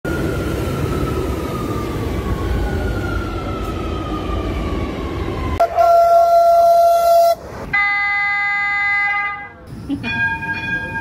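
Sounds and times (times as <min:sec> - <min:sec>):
train rumble with whine: 0:00.1 - 0:11.0
chord-like train horn: 0:05.6 - 0:09.5
train horn blast: 0:05.6 - 0:09.6.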